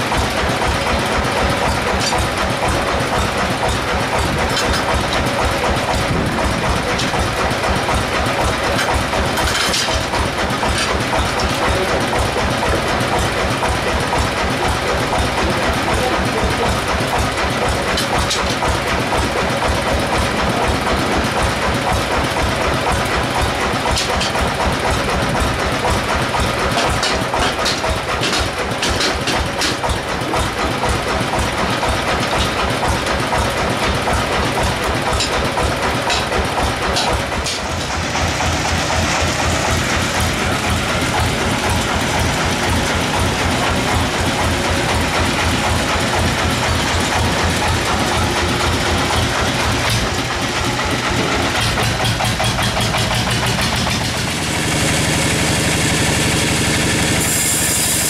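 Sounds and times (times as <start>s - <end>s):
sawmill machinery running: 0.0s - 58.0s
sharp clicks and knocks: 1.5s - 15.7s, 22.4s - 54.2s.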